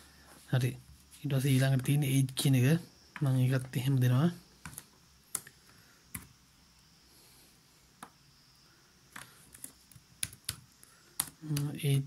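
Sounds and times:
keyboard and mouse clicks: 0:04.6 - 0:06.3, 0:09.1 - 0:10.6, 0:11.2 - 0:11.8.

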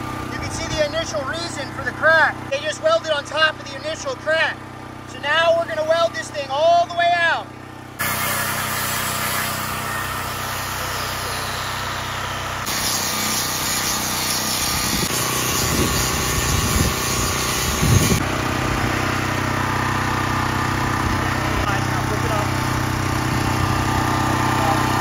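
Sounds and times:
generator engine running: 0:00.0 - 0:25.0
angle grinder grinding steel: 0:08.0 - 0:18.2.

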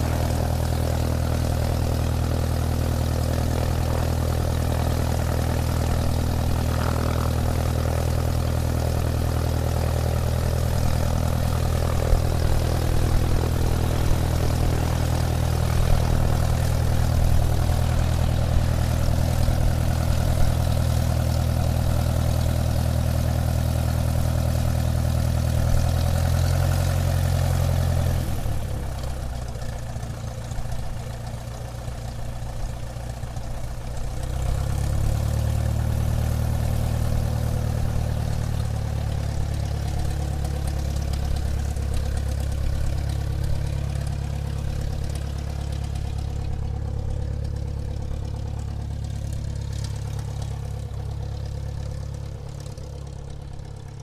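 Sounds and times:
airplane engine droning: 0:00.0 - 0:26.5.

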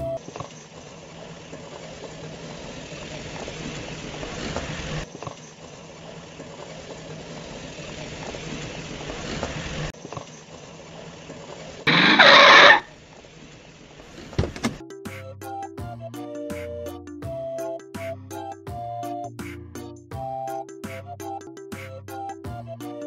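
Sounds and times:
plastic wheels rolling on asphalt: 0:00.0 - 0:14.6
toy car motor whirring: 0:11.9 - 0:13.0.

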